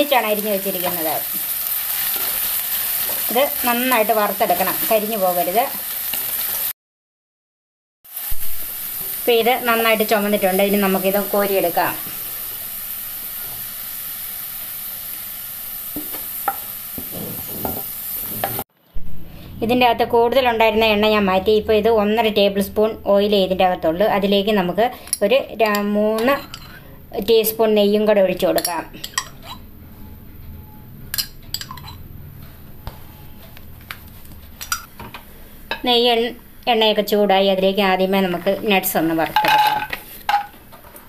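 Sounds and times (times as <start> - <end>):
onions sizzling in oil: 0.0 - 6.7, 8.1 - 18.6
wooden spatula scraping a pan: 17.0 - 18.6.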